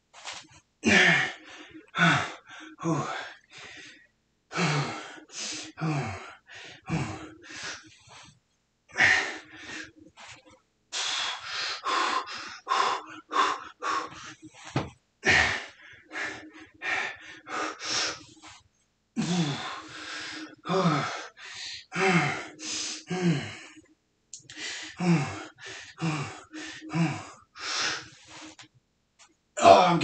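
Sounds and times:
man grunting: 0:29.6 - 0:30.0.

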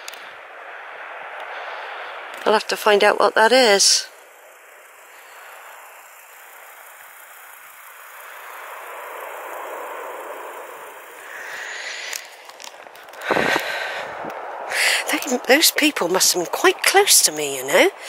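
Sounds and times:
breeze hissing on microphone: 0:00.0 - 0:18.0
wind buffet on microphone: 0:13.2 - 0:15.5.

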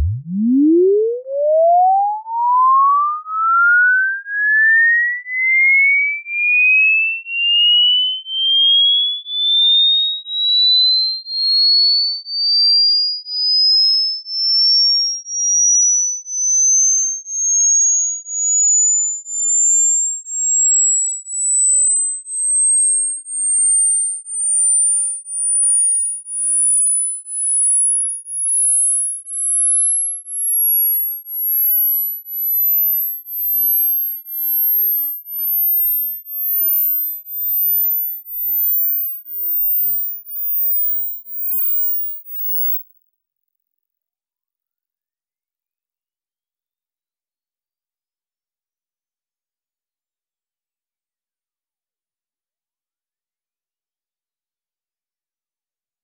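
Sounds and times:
pulsing sine tone sweeping upward: 0:00.0 - 0:05.8, 0:14.3 - 0:42.8.

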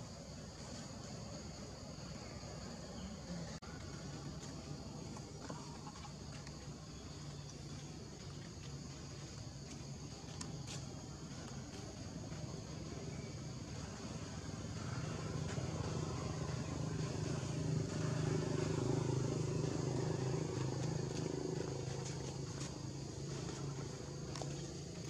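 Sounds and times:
vehicle engine running: 0:11.2 - 0:25.0.

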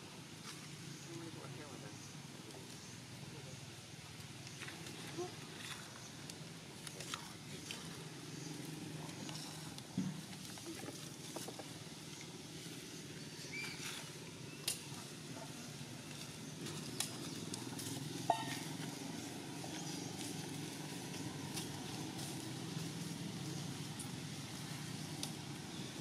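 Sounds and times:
clicks and rustles in branches: 0:04.3 - 0:12.6, 0:15.8 - 0:26.0
faint monkey squeak: 0:13.4 - 0:13.9.

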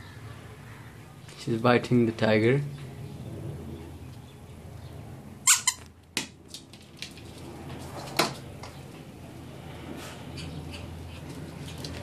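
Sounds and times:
squeaky toy squeaking: 0:05.4 - 0:05.9.

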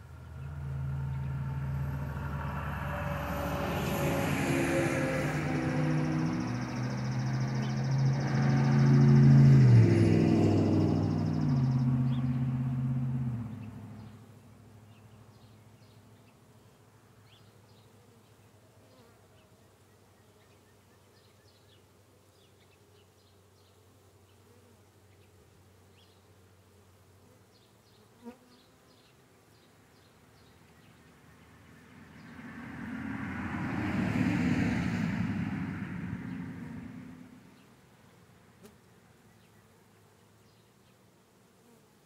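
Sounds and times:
honeybees buzzing: 0:02.9 - 0:12.9.

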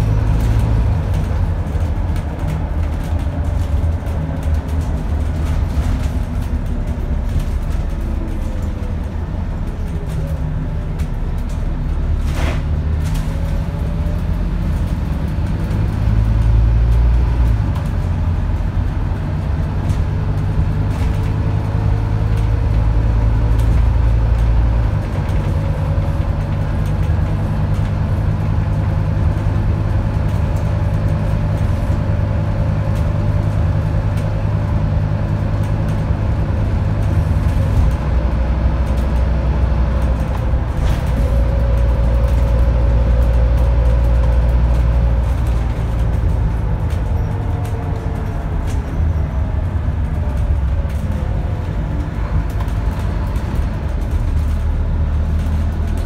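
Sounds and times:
bus diesel engine droning: 0:00.0 - 0:56.0.

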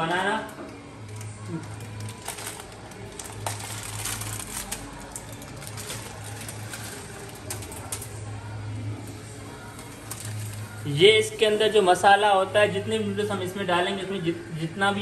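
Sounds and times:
plastic packets crinkling and tearing: 0:00.7 - 0:08.3, 0:09.6 - 0:10.9.

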